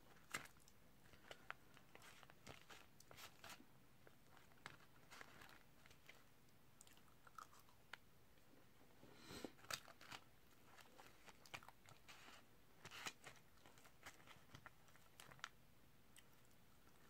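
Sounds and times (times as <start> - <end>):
chewing food: 0.2 - 8.0.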